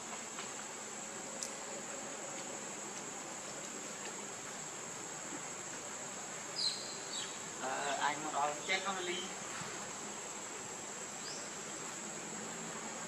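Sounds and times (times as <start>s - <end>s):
insects droning: 0.0s - 13.0s.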